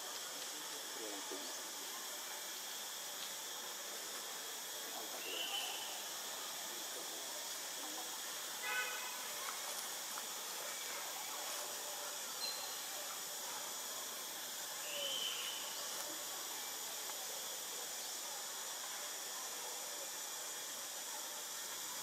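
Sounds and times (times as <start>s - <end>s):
outdoor ambience hiss: 0.0s - 22.0s
faint high-pitched calls: 5.2s - 6.0s, 14.8s - 16.0s.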